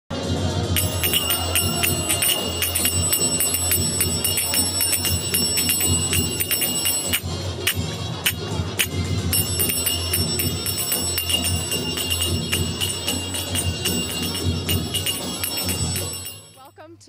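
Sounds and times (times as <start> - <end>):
finger cymbals ringing: 0.8 - 16.7.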